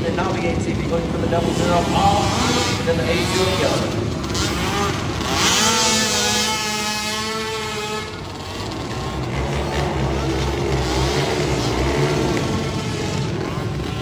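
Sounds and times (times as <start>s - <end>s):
quad engines revving: 0.0s - 14.0s.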